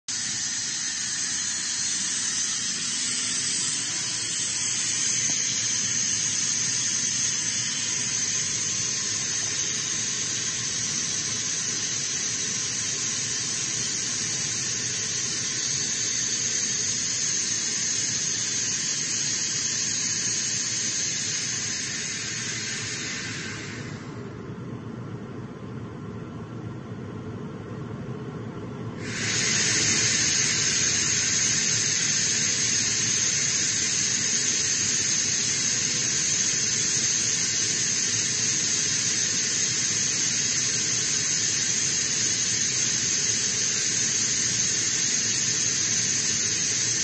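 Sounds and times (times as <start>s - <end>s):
air compressor running with hiss: 0.0s - 26.5s, 28.9s - 47.0s.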